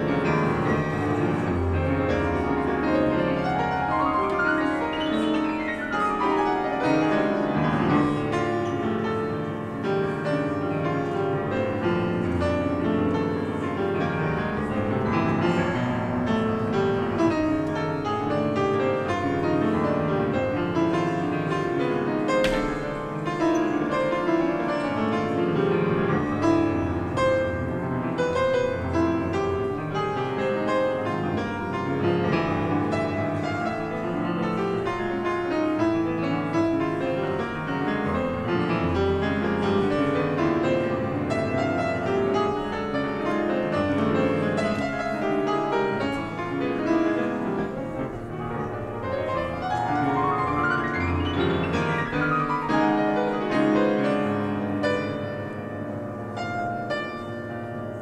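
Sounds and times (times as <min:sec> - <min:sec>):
piano: 0:00.0 - 0:58.0.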